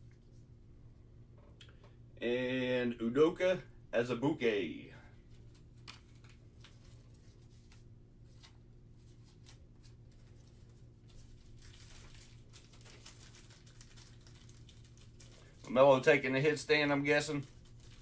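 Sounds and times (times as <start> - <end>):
low steady hum: 0.0 - 18.0
cards rustling in plastic sleeves: 5.2 - 18.0.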